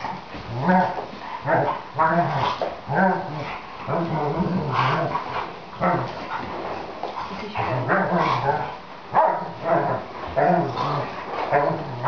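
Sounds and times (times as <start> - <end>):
dogs growling and whining: 0.0 - 6.7, 7.6 - 12.0.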